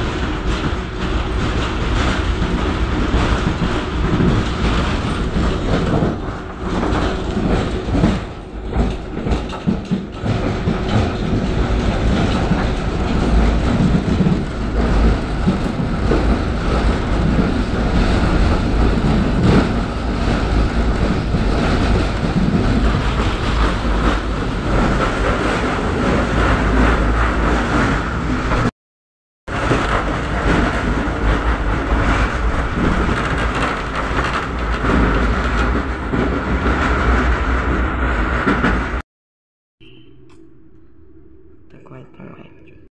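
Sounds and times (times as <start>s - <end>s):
tram wheels rumbling on rail: 0.0s - 28.7s, 29.5s - 39.0s.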